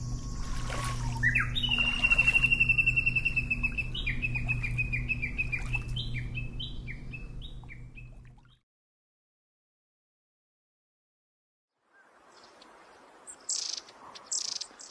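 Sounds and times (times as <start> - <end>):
low hum: 0.0 - 8.6
songbird singing: 0.0 - 8.6, 11.9 - 14.9.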